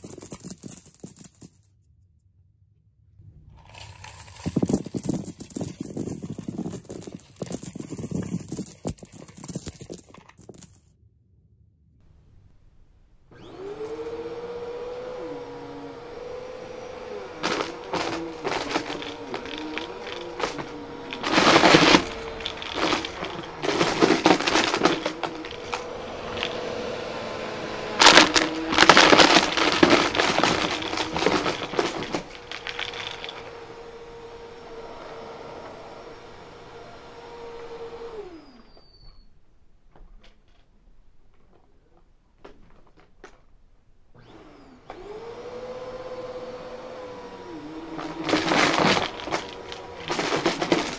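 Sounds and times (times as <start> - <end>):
coins rattling through vacuum: 0.0 - 1.7, 3.6 - 10.9, 16.8 - 27.1, 27.7 - 34.1, 47.8 - 50.9
vacuum cleaner running: 13.3 - 38.8, 44.2 - 50.9.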